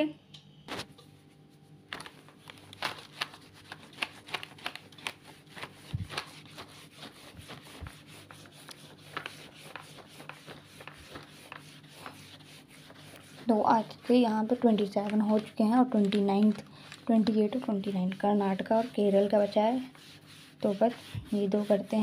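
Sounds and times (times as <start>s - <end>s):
paper rubbing under hand: 2.0s - 22.0s
pencil scratching on paper: 5.3s - 22.0s.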